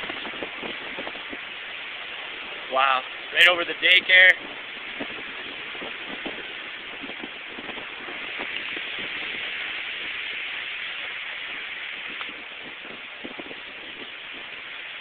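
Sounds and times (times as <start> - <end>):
storm wind rushing: 0.0 - 15.0.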